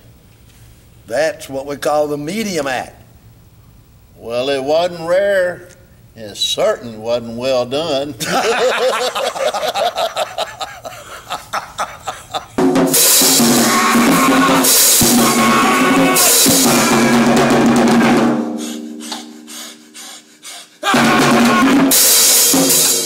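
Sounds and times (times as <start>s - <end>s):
men laughing: 8.2s - 14.7s
drum kit played hard: 12.2s - 19.4s, 20.8s - 23.0s
crashing cymbals: 12.6s - 17.5s, 20.9s - 23.0s.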